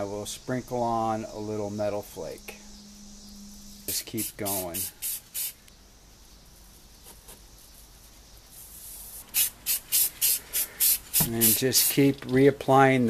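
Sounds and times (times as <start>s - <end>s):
aerosol spray hissing: 3.9s - 5.6s, 8.6s - 12.0s.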